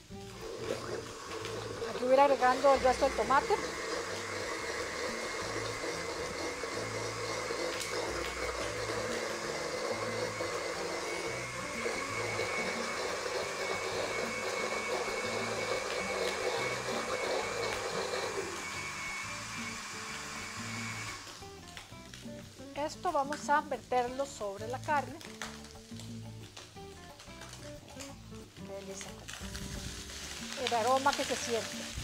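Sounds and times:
blender motor running: 0.0s - 22.6s, 29.1s - 32.0s.

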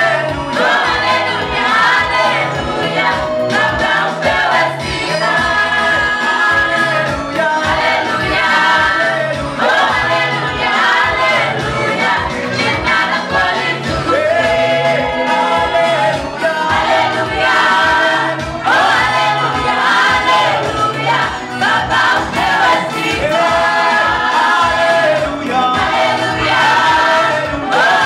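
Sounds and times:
gospel choir singing: 0.0s - 28.0s
steady beat: 0.0s - 28.0s.

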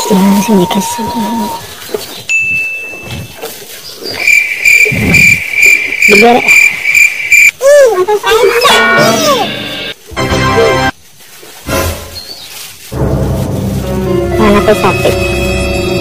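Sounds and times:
high insect-like chirping: 4.2s - 7.5s.

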